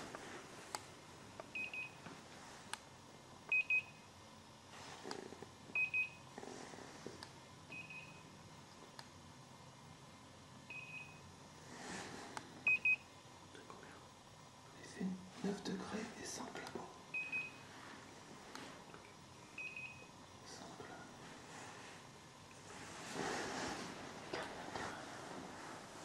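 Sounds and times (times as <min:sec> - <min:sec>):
faint clothing rustling: 0:21.2 - 0:26.0.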